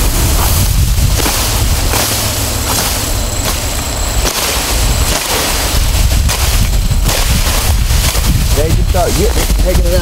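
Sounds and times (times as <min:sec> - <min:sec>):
leaves and stems rustling: 0:00.0 - 0:10.0
wind buffeting microphone: 0:00.0 - 0:10.0.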